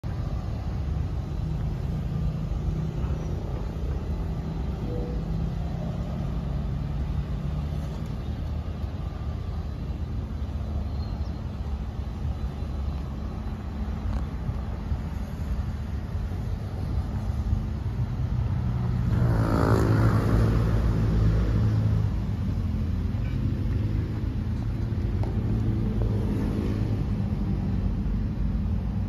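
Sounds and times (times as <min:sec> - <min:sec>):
diesel truck engine idling: 0:00.0 - 0:19.0.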